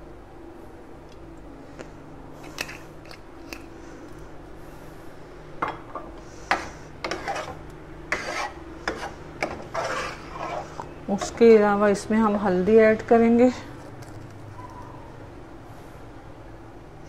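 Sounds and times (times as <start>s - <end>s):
faint steady hum: 0.0s - 17.0s
metal spoon scraping in pot: 6.5s - 11.6s.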